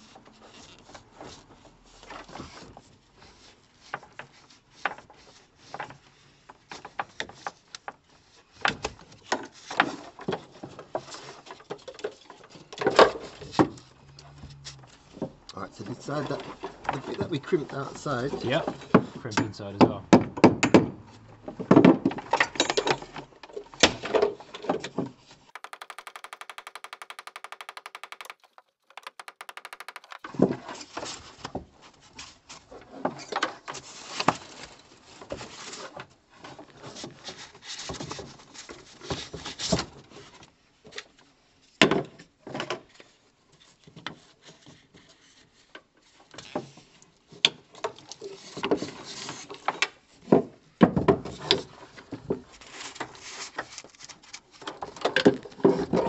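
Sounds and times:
rapid even ticking: 25.6 - 30.3.

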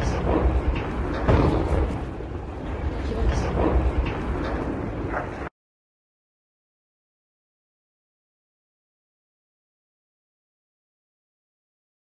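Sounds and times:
low outdoor rumble: 0.0 - 5.5.

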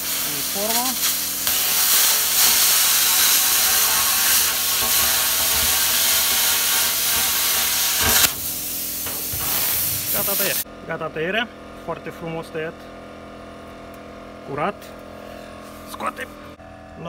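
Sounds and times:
plasma cutter hissing: 0.0 - 10.6.

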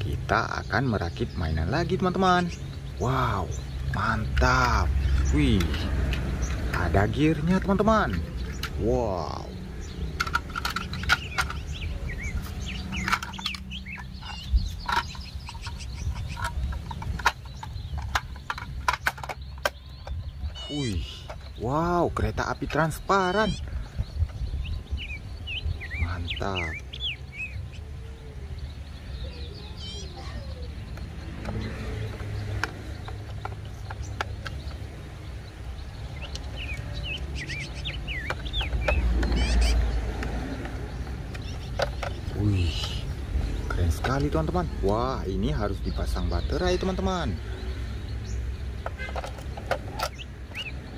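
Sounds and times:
birds chirping: 0.0 - 50.9
plastic toy clicking: 9.9 - 20.6, 30.9 - 34.9, 38.2 - 43.0.

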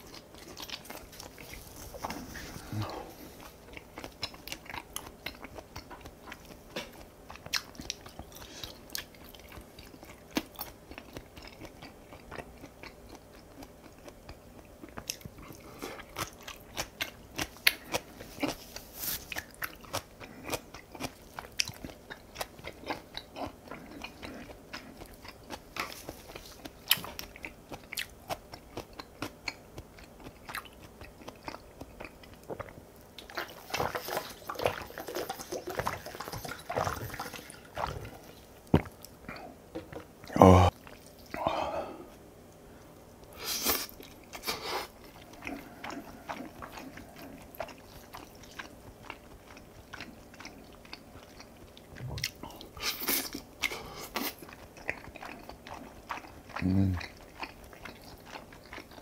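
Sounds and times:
person chewing food: 0.0 - 59.0.

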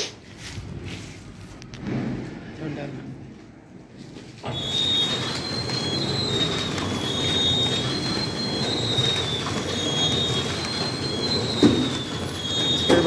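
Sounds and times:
high machine whine: 4.4 - 13.0
packing machine clatter: 4.4 - 13.0.

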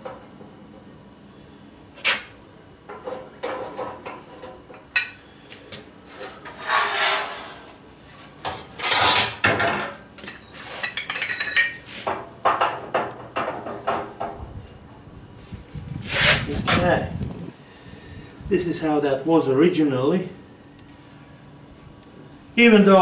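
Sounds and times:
metal scraping on metal: 6.1 - 7.8, 8.8 - 9.4
metal pipes clanking: 8.5 - 11.9.

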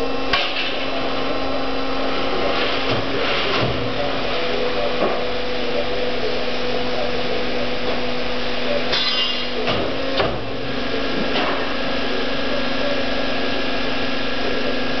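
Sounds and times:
tube bending machine humming: 0.0 - 15.0.

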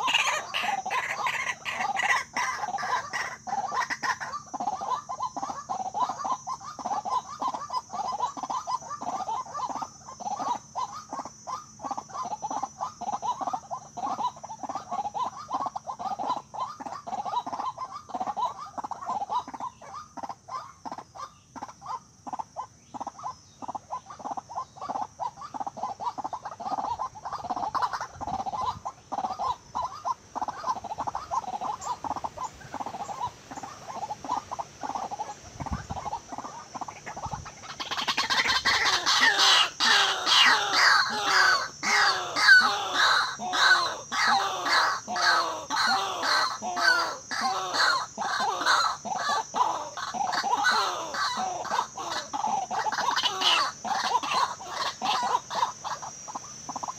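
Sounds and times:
waterhens croaking calls: 0.0 - 56.9.

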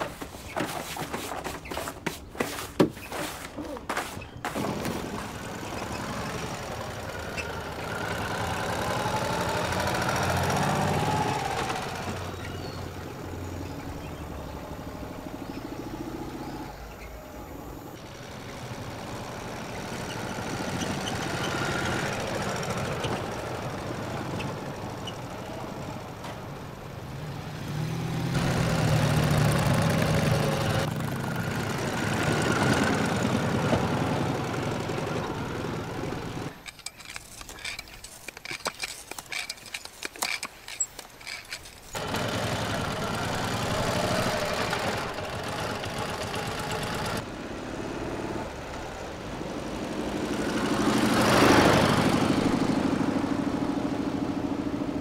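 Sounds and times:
hand tyre pump strokes: 0.0 - 6.1, 36.5 - 42.2
motorcycle engine running: 17.3 - 36.6, 40.7 - 47.2.

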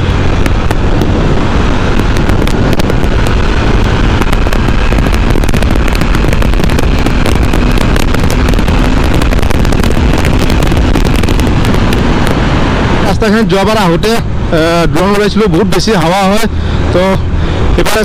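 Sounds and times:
motorcycle engine pulling hard: 0.0 - 13.2
wind buffeting on microphone: 0.0 - 18.0.

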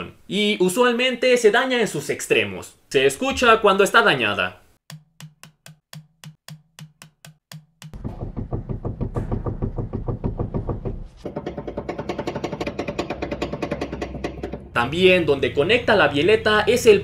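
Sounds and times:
tie rod knocking: 7.5 - 14.8.

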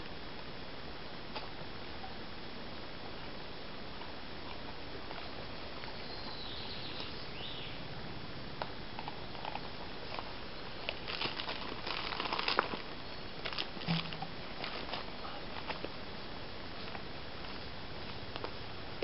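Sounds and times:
steady background hiss: 0.0 - 19.0
crackles and clicks: 8.6 - 19.0
footsteps in dry leaves: 10.0 - 16.0.

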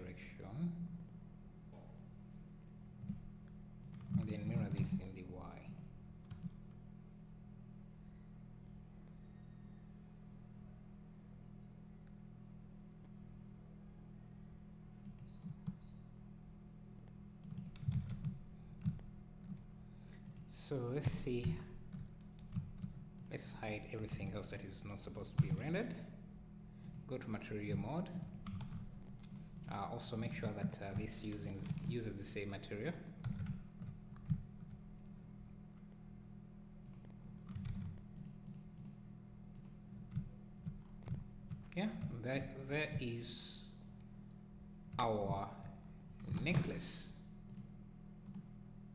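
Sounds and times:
steady low hum: 0.0 - 48.9
keyboard keys clicking: 36.8 - 42.1.

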